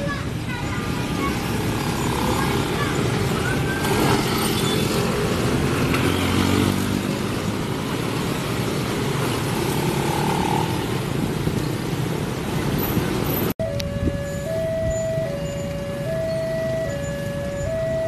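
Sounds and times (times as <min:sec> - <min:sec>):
traffic passing close by: 0:00.0 - 0:18.0
motorcycle revving: 0:00.9 - 0:13.4.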